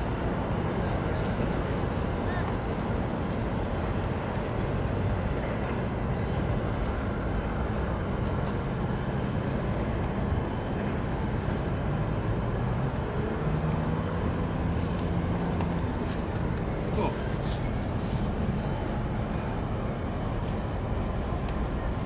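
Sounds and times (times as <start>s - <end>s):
low engine rumble: 0.0s - 22.0s
low steady drone: 0.0s - 22.0s.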